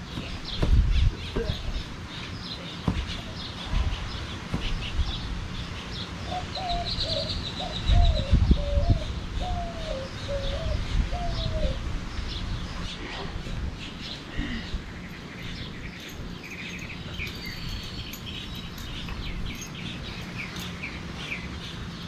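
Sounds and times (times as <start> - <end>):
low rumbling thumps: 0.0 - 1.9
bird calling: 0.1 - 11.8, 13.8 - 21.4
high bird chirping: 13.8 - 21.7.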